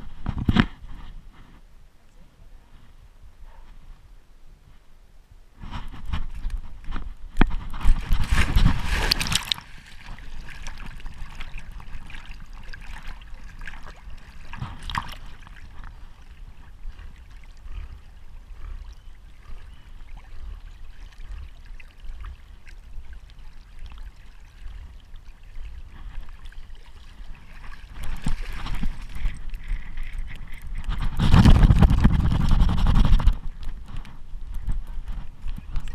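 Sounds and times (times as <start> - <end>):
dog splashing in water: 7.9 - 12.2.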